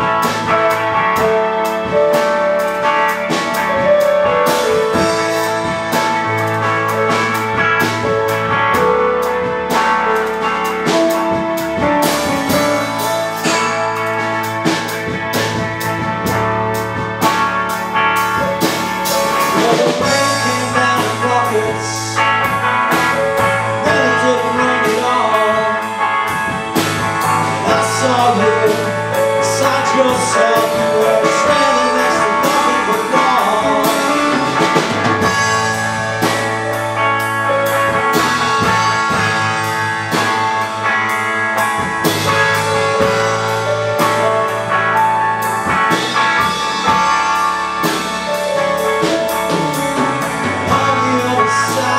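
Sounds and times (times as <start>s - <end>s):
drum kit: 0.0s - 51.9s
electric bass: 0.0s - 51.9s
electric guitar: 0.0s - 51.9s
man singing: 19.2s - 22.6s, 23.6s - 26.1s, 27.4s - 34.9s, 50.1s - 51.9s.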